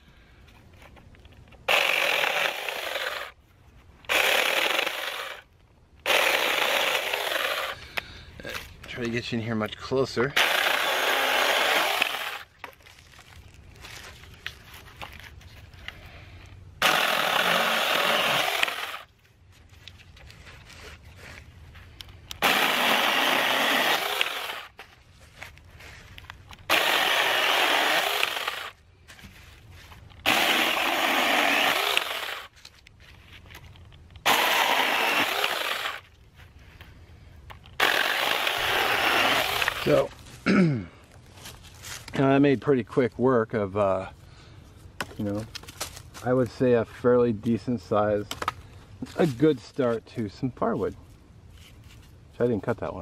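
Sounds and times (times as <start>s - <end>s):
mini chainsaw cutting branch: 1.6s - 3.4s, 4.1s - 5.4s, 6.0s - 7.8s, 10.3s - 12.5s, 16.8s - 19.1s, 22.3s - 24.8s, 26.6s - 28.8s, 30.2s - 32.5s, 34.2s - 36.1s, 37.8s - 40.1s.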